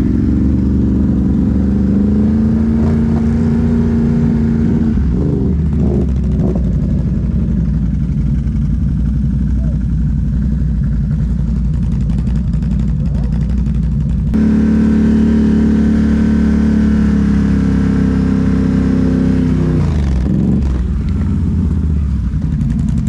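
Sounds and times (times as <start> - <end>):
atv engine running: 0.0 - 23.0.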